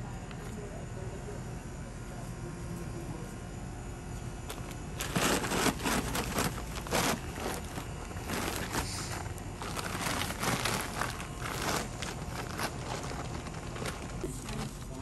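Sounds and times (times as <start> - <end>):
bags rustling and crinkling: 4.4 - 15.0.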